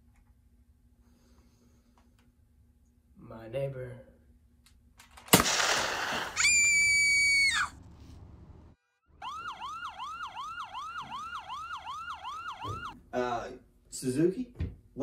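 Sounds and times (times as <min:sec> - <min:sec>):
high held scream: 0:06.3 - 0:07.8
wailing siren: 0:09.1 - 0:13.0.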